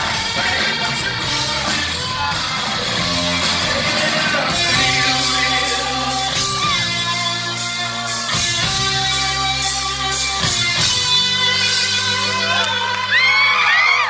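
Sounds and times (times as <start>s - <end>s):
electric guitar ringing chords: 0.0s - 13.9s
live rock band: 0.0s - 14.0s
crowd whooping and cheering: 9.5s - 14.0s.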